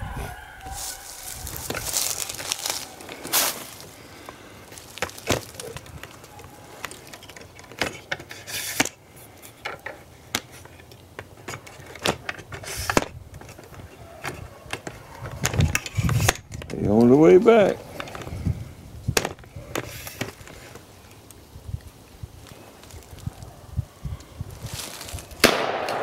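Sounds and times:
branches rustling: 0.0s - 26.0s
footsteps crunching dry leaves: 0.3s - 7.1s, 22.4s - 23.5s, 24.4s - 25.6s
twigs snapping: 0.6s - 8.0s, 20.1s - 23.5s, 24.2s - 26.0s.

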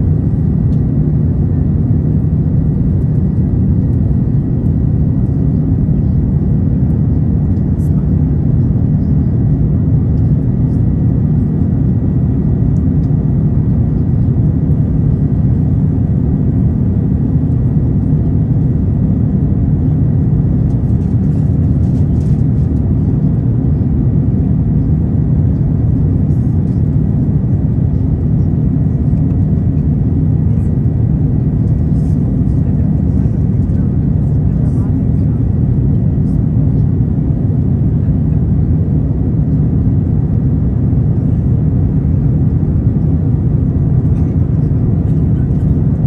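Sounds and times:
airplane cabin rumble: 0.0s - 46.0s.

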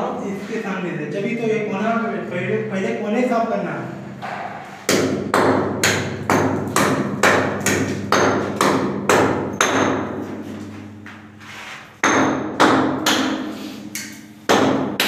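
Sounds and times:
hammer striking concrete wall: 4.2s - 15.0s.

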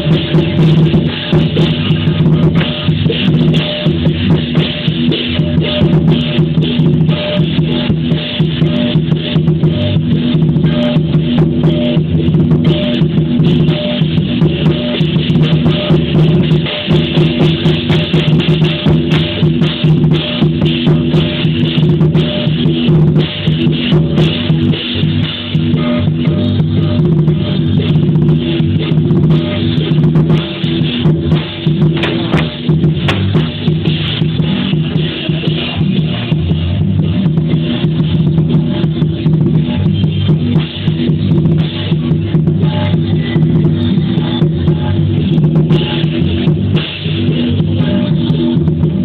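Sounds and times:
big drum beaten fast: 0.0s - 49.0s
cymbals clashing: 0.0s - 49.0s
gongs ringing: 29.4s - 35.4s.

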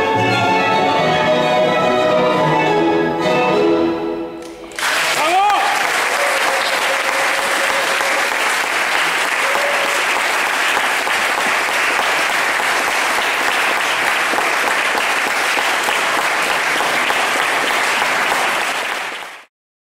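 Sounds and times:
audience clapping: 4.4s - 19.5s.

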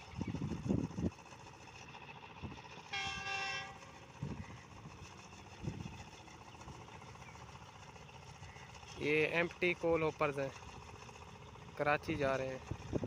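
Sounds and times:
faint engine hum: 0.0s - 13.0s
horn tone: 2.9s - 3.9s.

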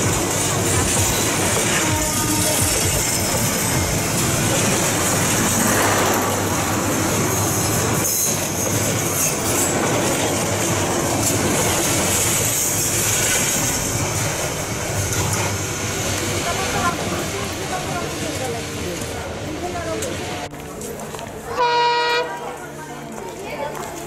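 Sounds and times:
train wheels on rails: 0.0s - 24.0s.

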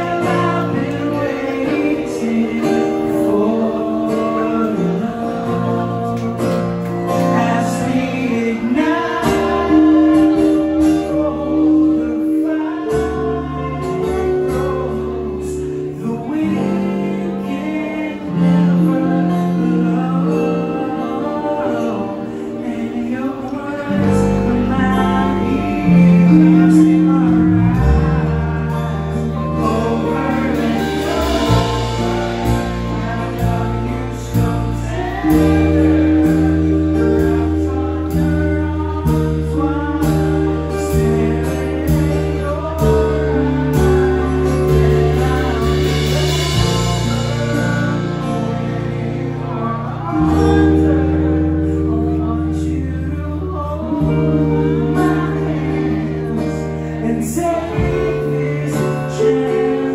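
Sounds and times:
bass guitar low notes: 0.0s - 59.9s
electric and acoustic guitars: 0.0s - 59.9s
keyboard: 0.0s - 59.9s
male lead singer: 0.0s - 59.9s
drum kit with cymbals: 24.2s - 52.6s.

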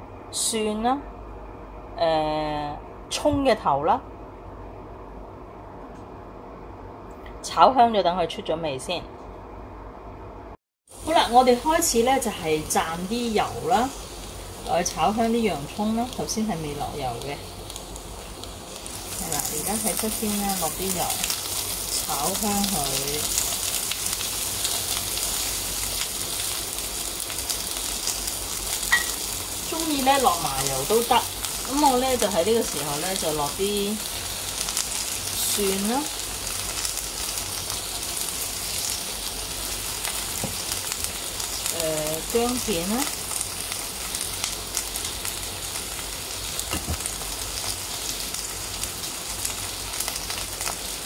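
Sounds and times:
onions sizzling in oil: 10.9s - 51.0s.

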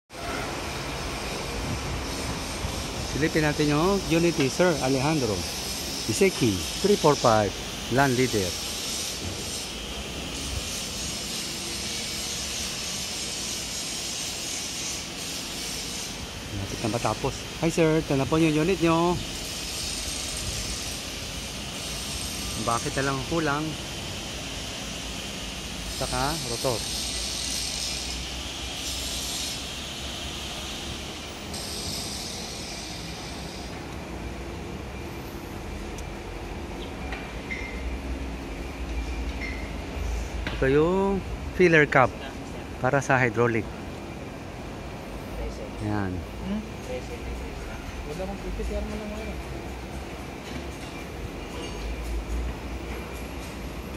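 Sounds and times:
whooshing machine noise: 0.1s - 53.9s
hiss: 0.2s - 33.9s
low mechanical hum: 0.2s - 53.9s.

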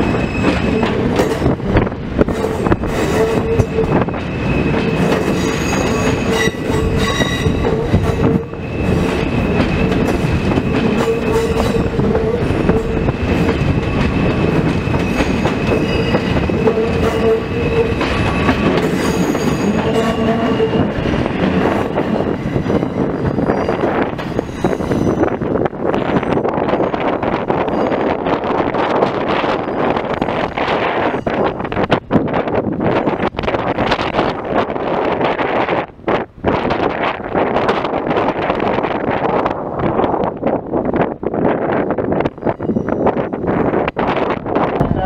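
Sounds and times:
subway train wheels rumbling: 0.0s - 45.0s
high steady squeal: 2.6s - 21.3s.

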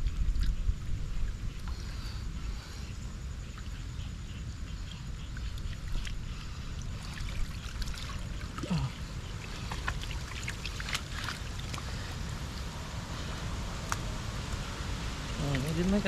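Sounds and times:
steady low rumble: 0.0s - 16.0s
muddy water splashing: 5.2s - 16.0s.

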